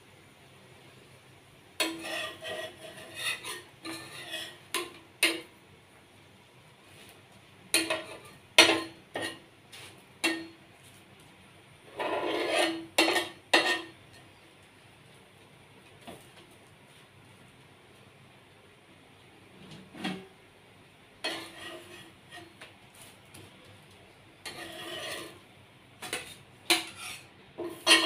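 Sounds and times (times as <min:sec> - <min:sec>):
metal spatula scraping griddle: 0:01.8 - 0:05.5, 0:07.7 - 0:10.5, 0:11.9 - 0:14.0, 0:21.2 - 0:22.6, 0:24.4 - 0:28.0.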